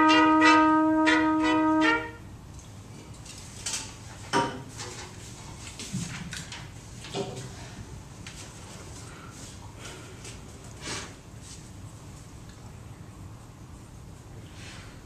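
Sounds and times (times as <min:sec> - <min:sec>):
trumpets playing a chord: 0:00.0 - 0:02.3.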